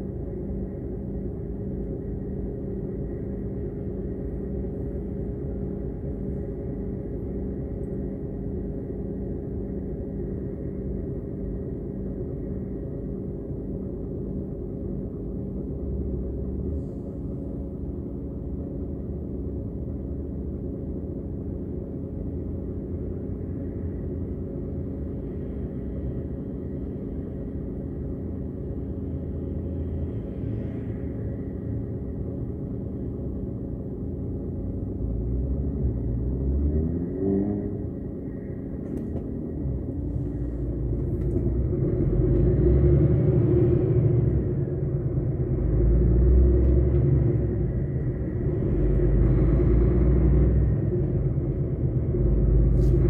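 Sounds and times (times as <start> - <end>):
passing traffic rumble: 21.5 - 53.0
vehicle engine idling: 37.7 - 53.0.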